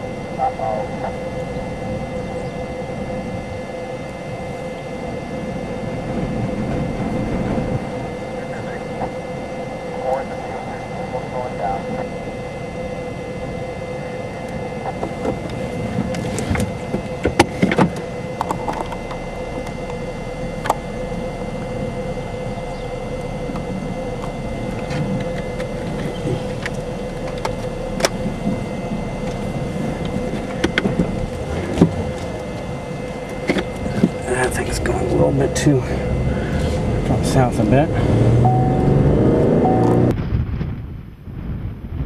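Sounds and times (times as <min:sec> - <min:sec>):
faint constant hum: 0:00.0 - 0:42.0
wind rumble: 0:00.0 - 0:42.0.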